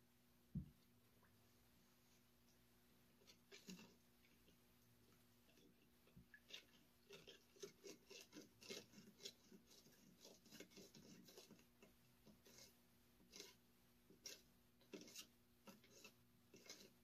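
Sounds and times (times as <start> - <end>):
spoon stirring in plastic cup: 3.2 - 4.6, 5.4 - 17.0.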